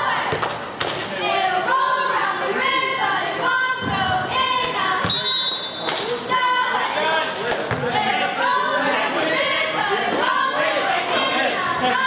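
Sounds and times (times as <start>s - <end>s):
referee whistle: 5.0s - 6.0s.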